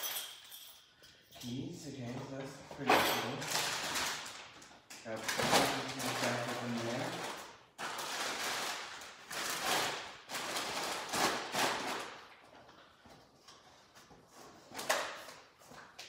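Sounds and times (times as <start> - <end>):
snack packaging rustling: 3.5 - 12.4.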